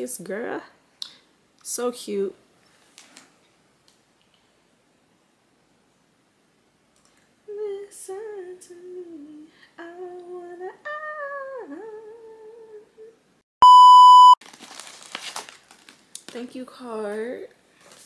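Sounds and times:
person wailing sing-song: 0:07.6 - 0:13.2
test-tone beep: 0:13.6 - 0:14.4.

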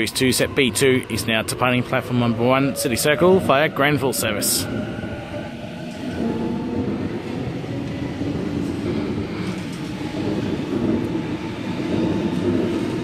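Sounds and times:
electric train passing: 0:00.0 - 0:13.0.

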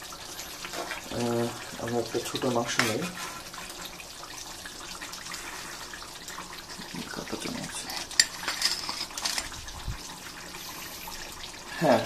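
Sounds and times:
curry simmering hiss: 0:00.0 - 0:12.0
metal ladle scraping a pan: 0:00.5 - 0:01.1, 0:02.5 - 0:04.0, 0:07.8 - 0:09.5.

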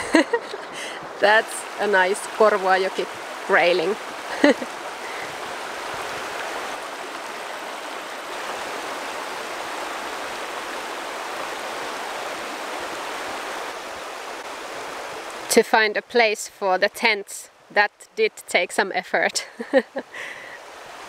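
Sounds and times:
river rushing over stones: 0:00.0 - 0:15.6, 0:20.0 - 0:21.0.

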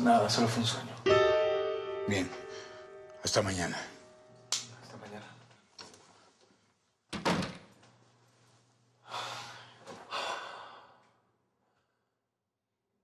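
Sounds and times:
door shutting: 0:07.1 - 0:07.8.

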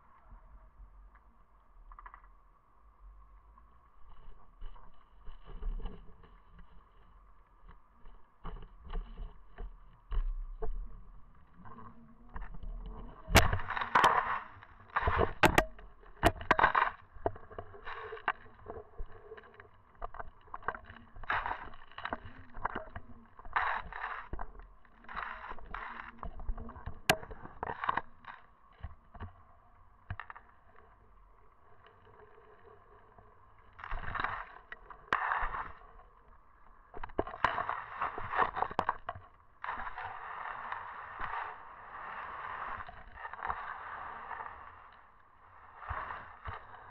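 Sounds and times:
sharp clicks and knocks: 0:15.0 - 0:19.1.

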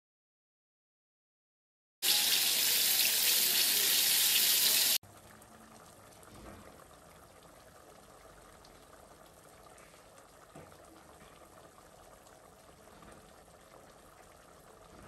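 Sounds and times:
egg sizzling in a frying pan: 0:02.0 - 0:05.0.

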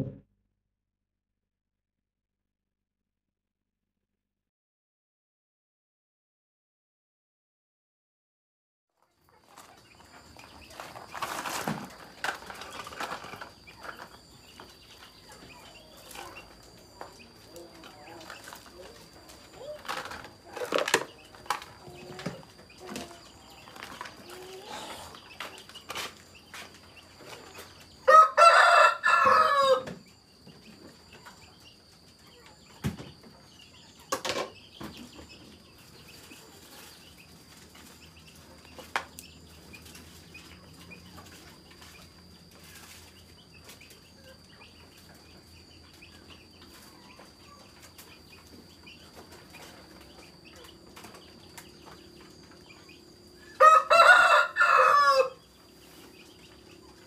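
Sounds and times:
rooster crowing: 0:28.0 - 0:30.0, 0:53.4 - 0:55.4.

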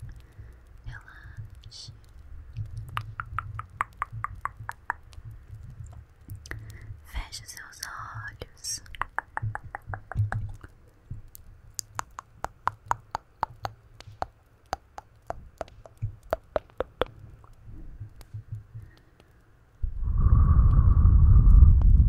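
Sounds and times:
wet mouth clicks and lip smacks: 0:02.6 - 0:06.8, 0:08.8 - 0:19.3.

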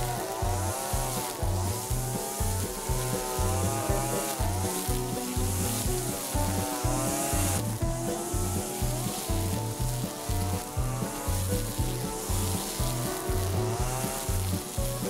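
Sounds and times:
music with bass beat: 0:00.0 - 0:15.0.

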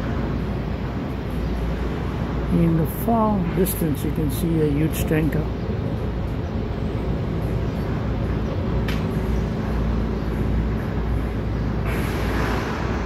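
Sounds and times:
low hum: 0:00.0 - 0:13.0
low outdoor rumble: 0:00.0 - 0:13.0
rushing hiss: 0:11.9 - 0:13.0.

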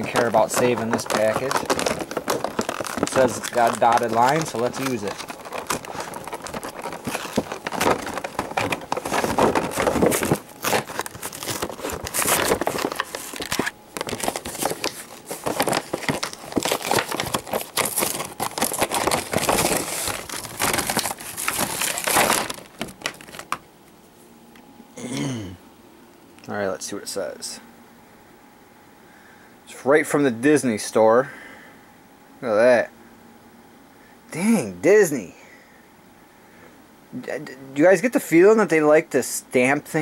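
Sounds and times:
cardboard packaging tearing: 0:00.0 - 0:23.6
plastic insert crinkling: 0:00.0 - 0:24.0.

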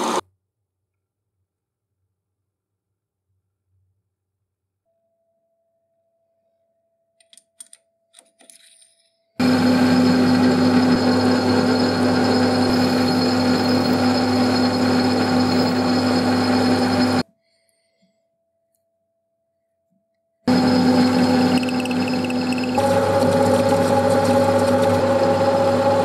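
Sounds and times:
metal lathe humming and whining: 0:09.4 - 0:17.2, 0:20.5 - 0:26.0.

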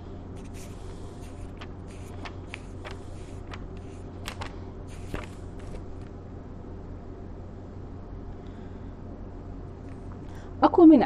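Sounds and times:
steady low hum: 0:00.0 - 0:11.0
paper pages rustling: 0:00.4 - 0:06.2.

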